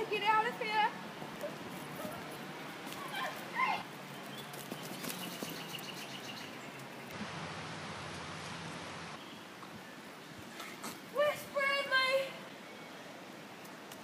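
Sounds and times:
steady outdoor hiss: 0.0s - 14.0s
running steps on pine needles: 1.7s - 6.2s.

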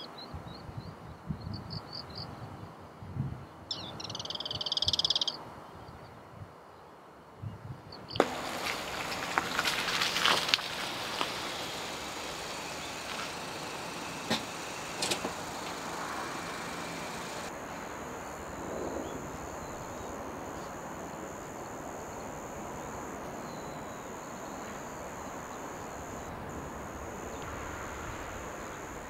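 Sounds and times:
outdoor background hiss: 0.0s - 29.0s
high-pitched insect trill: 9.5s - 29.0s.

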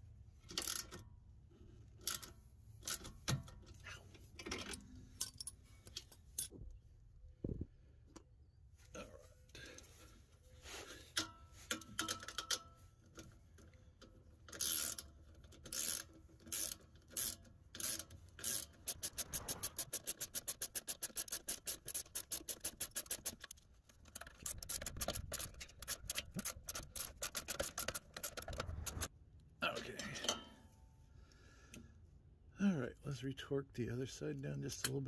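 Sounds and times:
ratchet wrench clicking: 0.5s - 1.0s, 2.0s - 3.1s, 14.5s - 29.1s.

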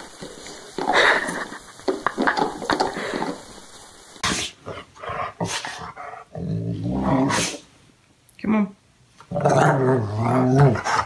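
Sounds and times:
dog grumbling and groaning: 4.6s - 7.7s, 9.2s - 11.0s.

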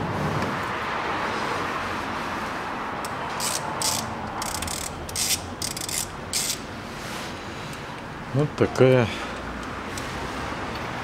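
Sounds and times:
ratchet wrench clicking: 3.0s - 6.7s.

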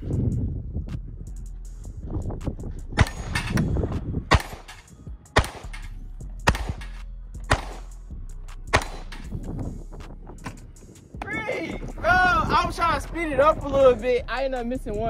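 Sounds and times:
pistol shots: 4.3s - 5.8s, 6.4s - 6.9s, 7.5s - 7.9s, 8.7s - 9.3s.

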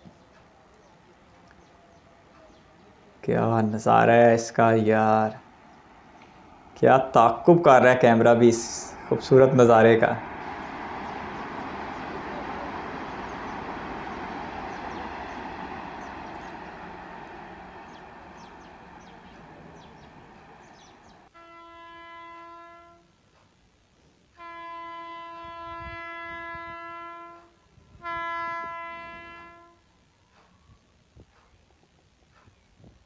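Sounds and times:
train passing: 0.0s - 23.0s, 24.3s - 30.5s
train horn blasts: 10.1s - 23.2s, 24.3s - 29.9s.

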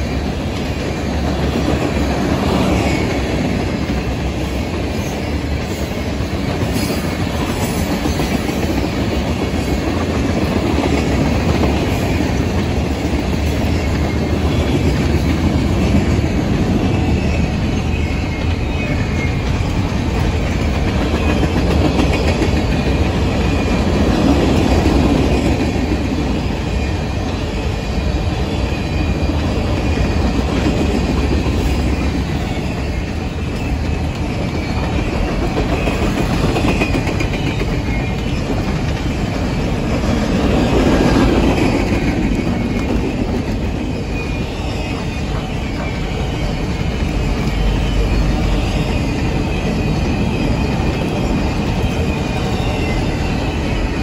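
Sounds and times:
train wheels rumbling on rail: 0.0s - 54.0s
clacking over rail joints: 18.0s - 26.0s, 29.8s - 53.0s.

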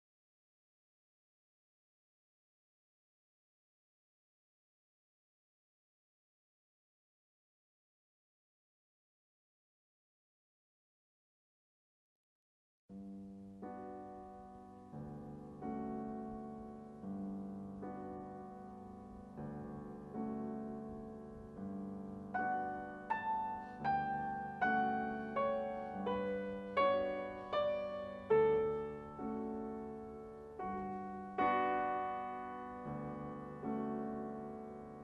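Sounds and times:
solo piano melody: 13.0s - 35.0s.

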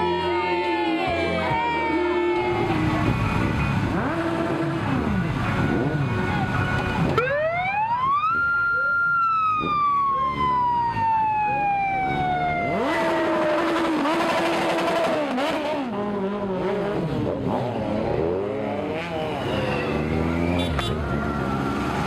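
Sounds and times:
motorcycle engines revving: 0.0s - 22.0s
siren winding down: 7.2s - 13.6s.

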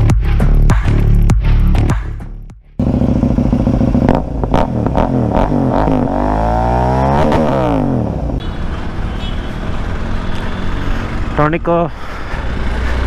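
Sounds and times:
motorcycle engine revving: 2.8s - 9.0s.

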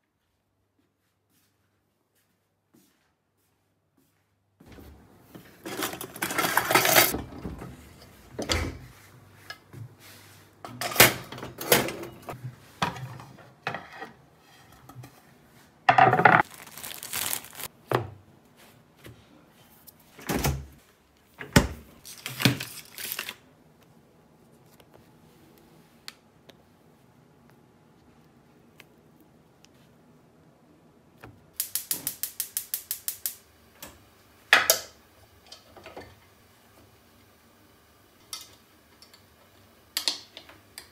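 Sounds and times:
pots and pans clattering: 5.6s - 7.8s
plastic bag crinkling: 16.3s - 17.7s, 22.0s - 23.4s.

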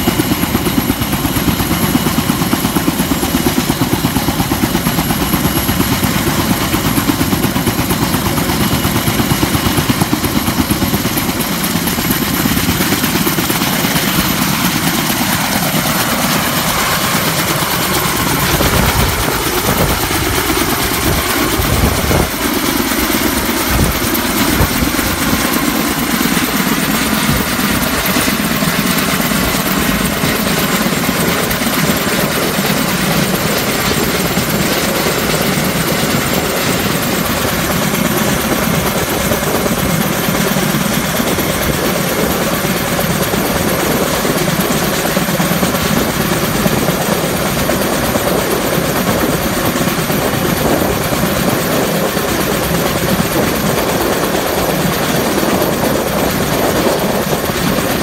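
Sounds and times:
helicopter rotors and turbine: 0.0s - 58.0s.

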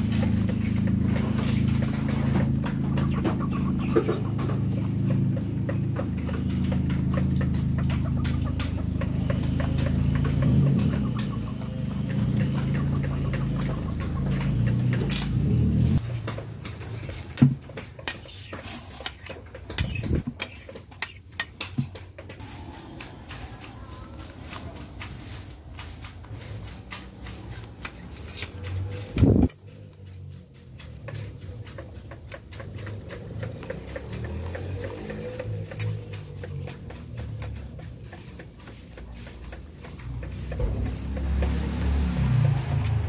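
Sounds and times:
metal spoon scraping and clicking: 14.4s - 15.4s, 18.0s - 23.1s, 26.7s - 29.6s.

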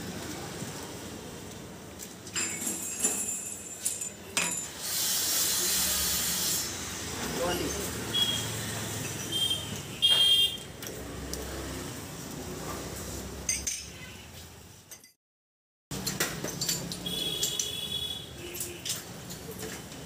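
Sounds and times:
street market noise: 0.0s - 15.1s, 15.9s - 20.0s
glass clinking: 13.5s - 14.0s.

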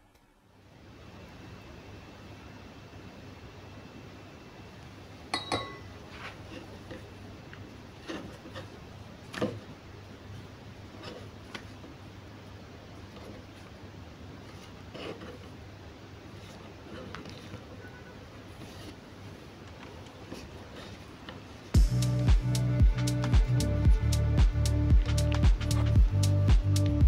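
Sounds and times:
hands rubbing dough on board: 7.9s - 9.4s, 14.4s - 15.6s.

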